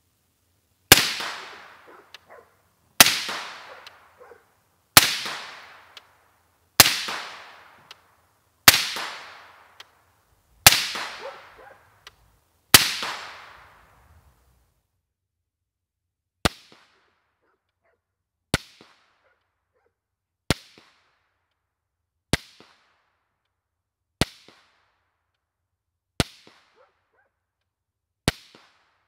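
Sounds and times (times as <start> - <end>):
suppressed rifle shots: 0.9 - 4.4, 10.6 - 11.8.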